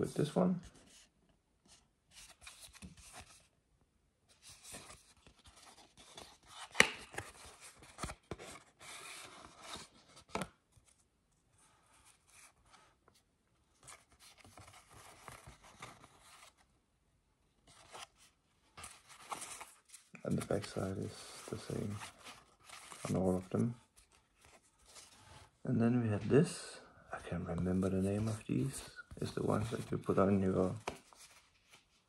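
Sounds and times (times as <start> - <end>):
paper and card rustling: 1.7 - 3.5, 4.3 - 16.6, 17.7 - 26.6, 27.2 - 32.0.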